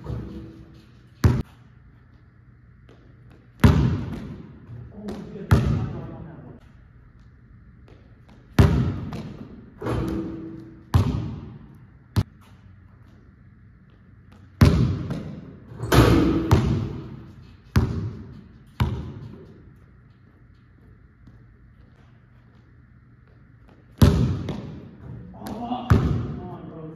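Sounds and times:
ball hitting hoop: 0:00.0 - 0:01.6, 0:02.9 - 0:06.0, 0:07.9 - 0:12.6, 0:14.3 - 0:19.7, 0:23.7 - 0:26.5
basketball bouncing in hall: 0:00.0 - 0:26.9.

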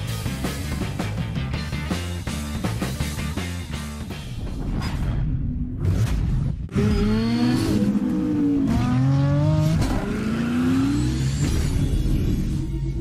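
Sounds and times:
car engine revving: 0:06.7 - 0:13.0.

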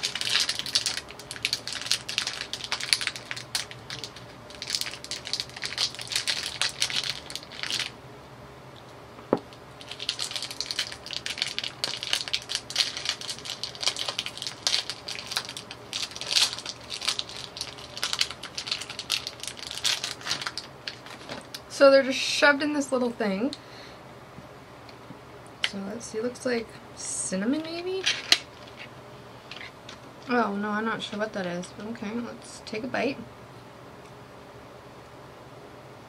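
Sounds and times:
plastic wrapper crinkling: 0:00.0 - 0:08.0, 0:09.8 - 0:21.7.

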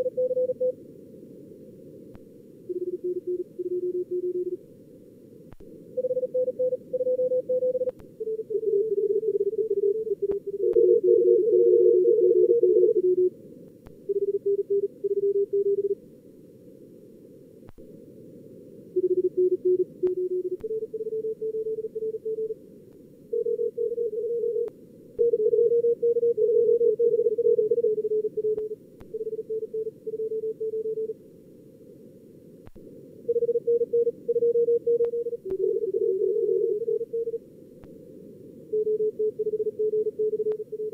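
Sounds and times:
morse code beeps: 0:00.0 - 0:00.7, 0:19.0 - 0:22.6, 0:23.4 - 0:31.1, 0:33.3 - 0:37.4.

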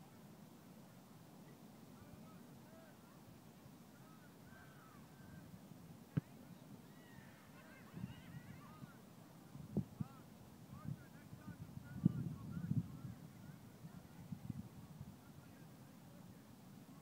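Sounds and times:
faint bird calls: 0:04.0 - 0:05.5, 0:06.1 - 0:09.0
wind noise: 0:07.8 - 0:08.7, 0:09.5 - 0:15.6.

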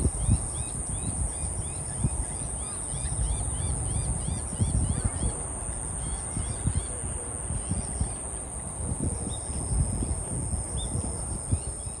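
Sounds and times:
high-pitched insect drone: 0:00.0 - 0:06.9
wind buffeting microphone: 0:00.0 - 0:12.0.

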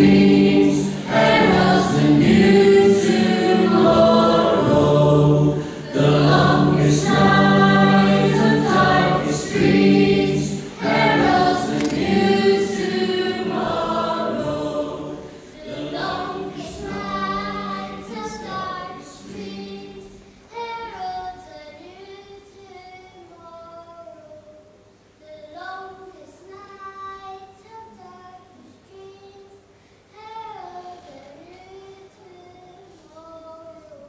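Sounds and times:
choir singing slow song: 0:00.0 - 0:21.4
child singing: 0:15.6 - 0:34.0.

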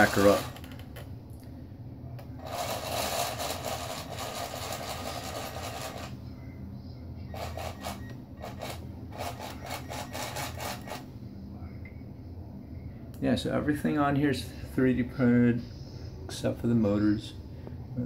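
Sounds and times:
small electric motors humming: 0:02.4 - 0:06.2, 0:07.3 - 0:11.0.

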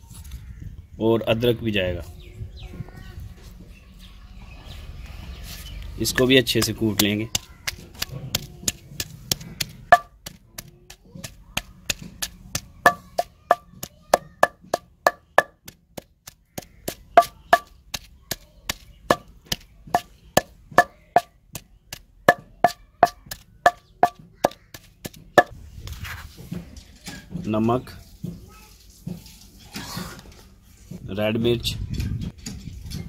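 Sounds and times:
pestle pounding in stone mortar: 0:06.5 - 0:25.6.

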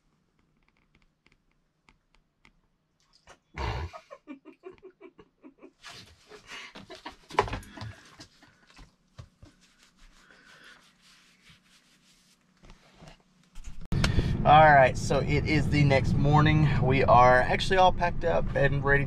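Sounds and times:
hand rubbing dog fur: 0:08.3 - 0:13.8.

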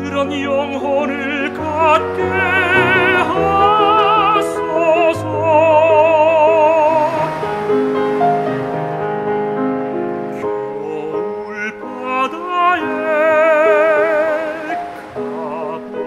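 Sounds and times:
tenor singing operatically: 0:00.0 - 0:08.2, 0:10.2 - 0:16.0
instrumental accompaniment: 0:01.3 - 0:12.0.

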